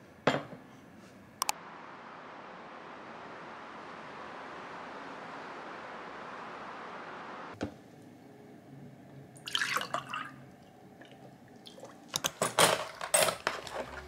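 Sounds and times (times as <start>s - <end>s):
water splashing and dripping: 9.4s - 12.3s.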